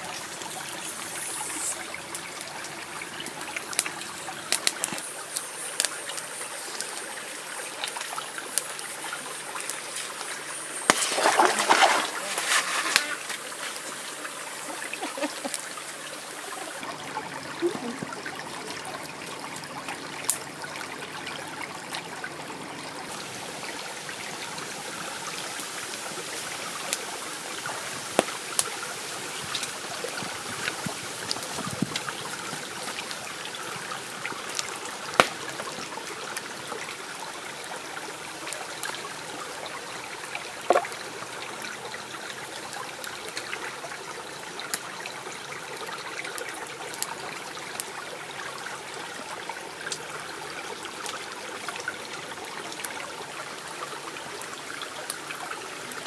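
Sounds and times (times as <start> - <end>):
stream trickling: 0.0 - 56.0
wood fire crackling and popping: 3.2 - 15.8, 28.0 - 28.8, 29.4 - 33.2, 34.3 - 36.5.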